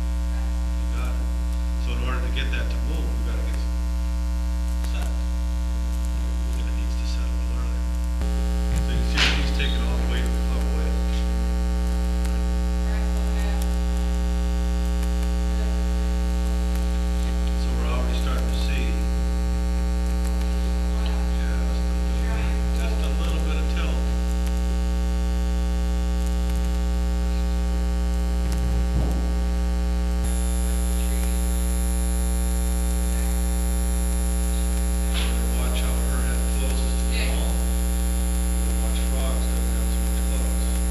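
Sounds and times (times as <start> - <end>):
electrical mains hum: 0.0 - 40.9.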